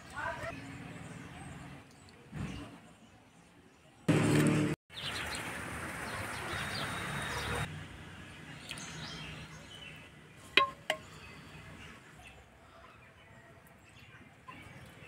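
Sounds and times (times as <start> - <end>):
metal ladle clinking on bowl: 10.6 - 11.1.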